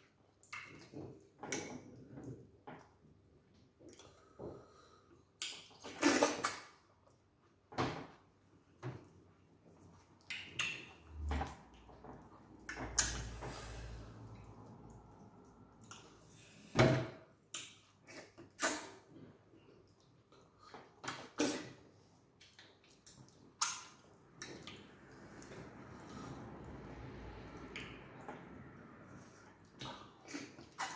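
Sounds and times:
wet eating smacks and slurps: 22.4 - 30.9.

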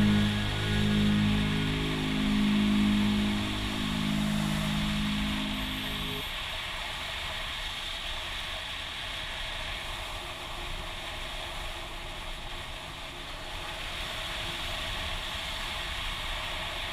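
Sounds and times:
faint motorcycle engine: 0.0 - 6.2.

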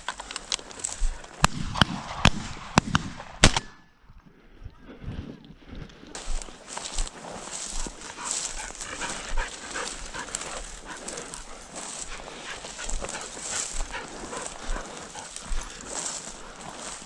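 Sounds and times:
dry brush rustling: 0.0 - 1.3, 6.2 - 17.0.

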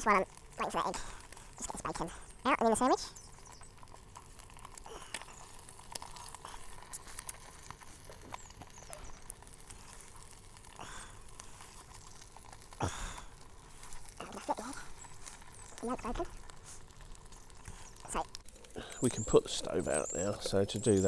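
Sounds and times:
bacon and egg frying: 0.0 - 21.0
fat spitting and popping: 3.0 - 19.3.

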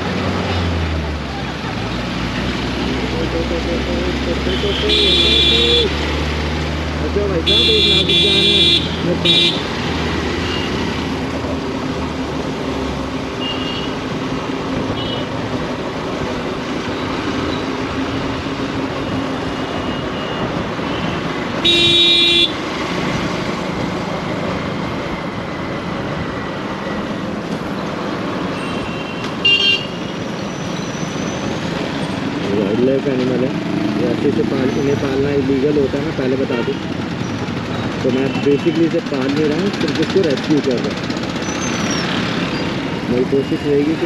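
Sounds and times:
road traffic noise: 0.0 - 44.0
vehicle horn honking: 4.5 - 5.9, 7.4 - 9.6, 13.4 - 14.0, 19.9 - 22.6, 28.6 - 30.1, 36.4 - 36.8.

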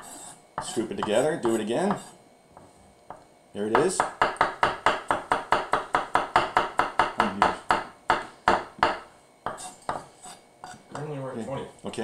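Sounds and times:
knife chopping on wooden board: 3.8 - 10.1.

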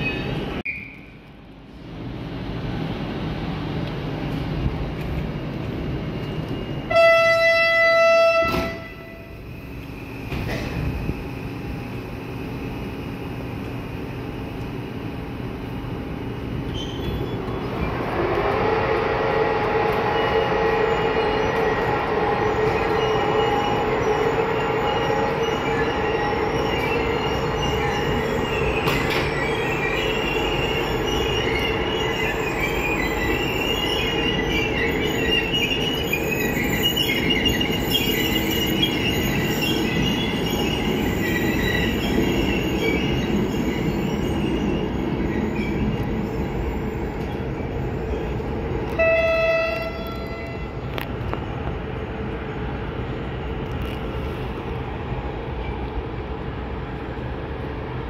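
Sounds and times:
train coaches rolling: 0.0 - 58.0
locomotive horn blast: 6.9 - 9.4, 48.9 - 51.0
high wheel squeal: 16.6 - 50.9.

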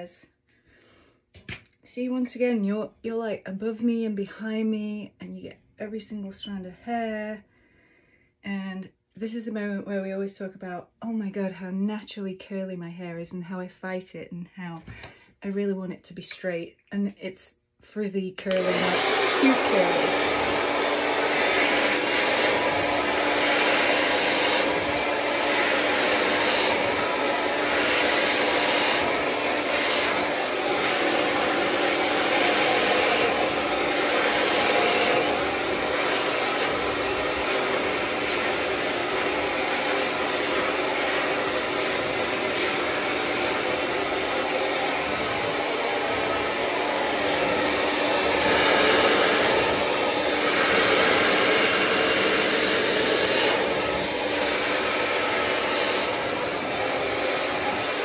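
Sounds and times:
hair dryer running: 18.4 - 58.0.

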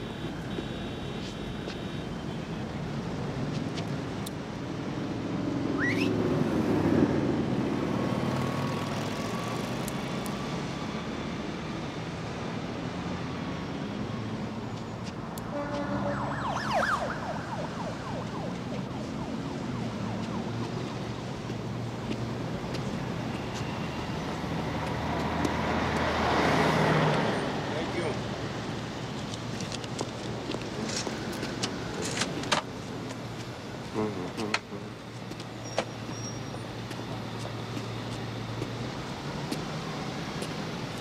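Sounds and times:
city street traffic: 0.0 - 41.0
rising siren-like whine: 15.4 - 21.4.

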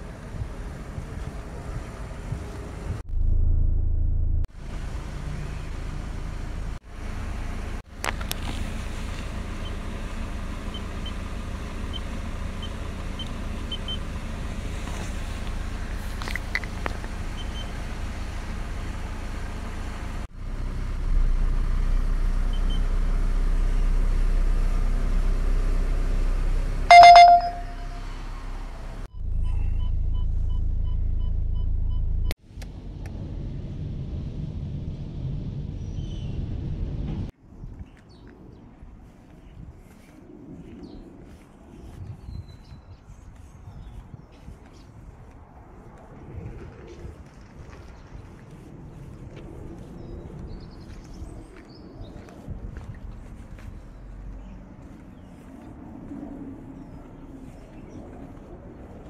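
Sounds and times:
van engine idling: 4.5 - 32.0
keypad beeps: 26.9 - 28.0
loud electronic beep: 26.9 - 28.0
quick evenly spaced beeps: 26.9 - 28.0.

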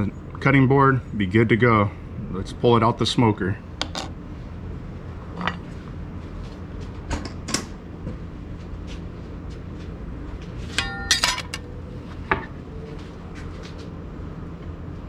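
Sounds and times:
metal tongs clinking: 10.8 - 11.7.

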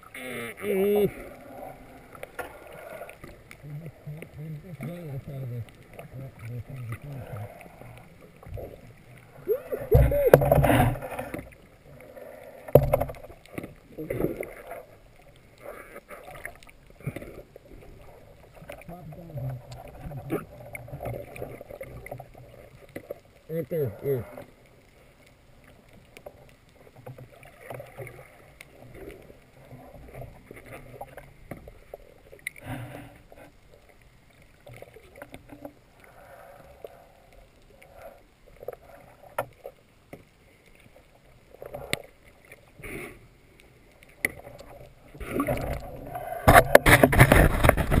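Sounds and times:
muffled underwater noise: 0.0 - 26.2, 41.6 - 48.0
soft underwater swishes and knocks: 2.0 - 11.6, 12.6 - 23.2, 44.0 - 48.0.

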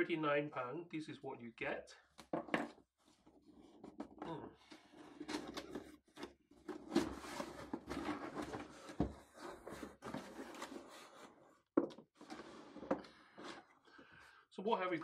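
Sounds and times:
cardboard flaps scraping and rustling: 5.1 - 13.7.

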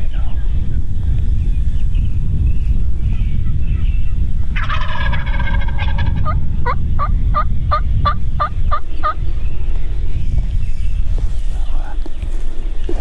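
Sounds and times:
low rumble: 0.0 - 13.0
turkey yelping notes: 4.5 - 9.2
turkey gobbling: 4.6 - 9.2.

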